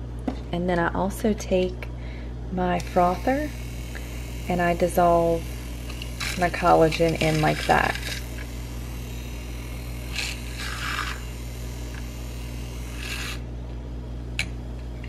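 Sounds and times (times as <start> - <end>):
steady low hum: 0.0 - 15.0
milk frother whisking: 2.8 - 13.4.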